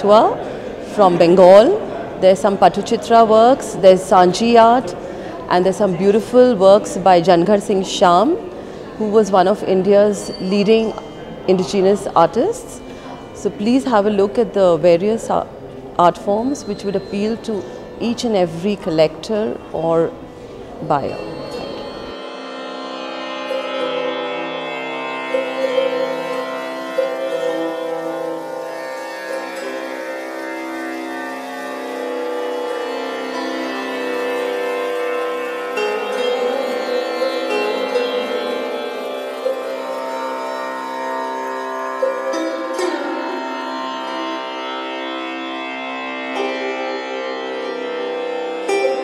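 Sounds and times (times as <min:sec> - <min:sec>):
string instrument slow melody: 0:00.0 - 0:49.0
steady drone: 0:19.4 - 0:47.7.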